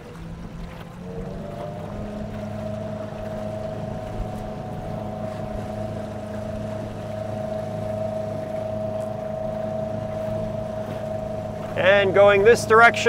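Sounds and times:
electric outboard motor whine: 0.0s - 13.0s
water washing along hull: 0.0s - 13.0s.

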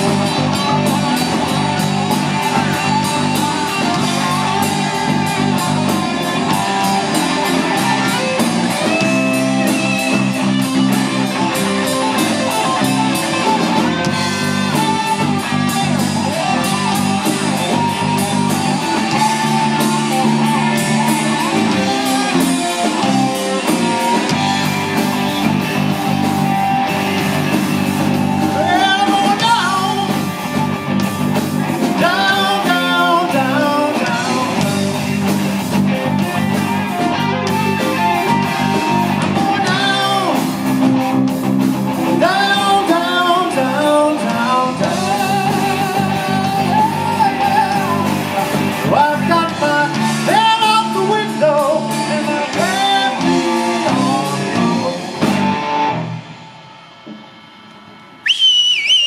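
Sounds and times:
live rock band playing: 0.0s - 59.0s
man singing: 12.4s - 24.2s, 28.4s - 30.5s, 31.8s - 35.6s, 38.9s - 40.9s, 42.0s - 55.1s.

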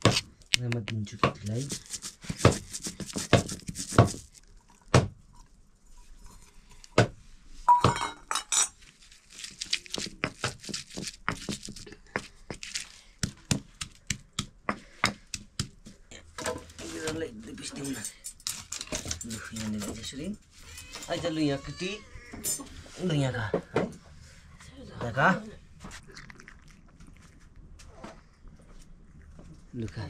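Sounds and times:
dishes clinking and knocking: 7.7s - 8.8s.

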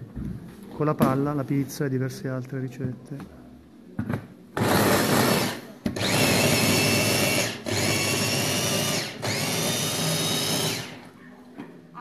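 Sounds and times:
electric food chopper whining: 4.6s - 11.1s.

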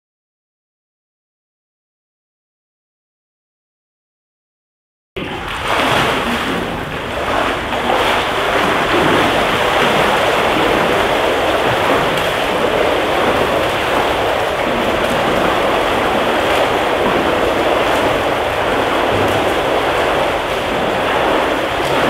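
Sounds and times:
swimmers splashing: 5.2s - 22.0s.

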